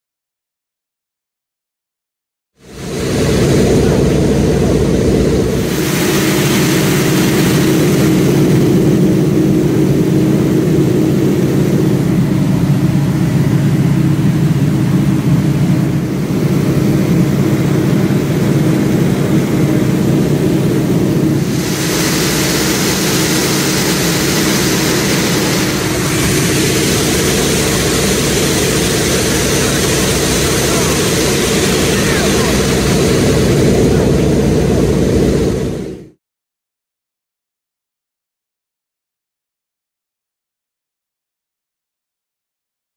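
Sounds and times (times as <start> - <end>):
propeller aircraft engine drone: 2.6 - 36.2
rushing air hiss: 5.6 - 8.6, 21.3 - 33.8.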